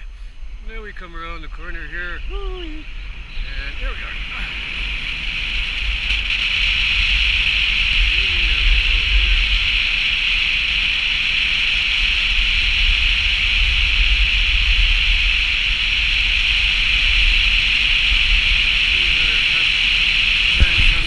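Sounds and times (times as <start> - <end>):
car road and wind noise: 0.0 - 21.0.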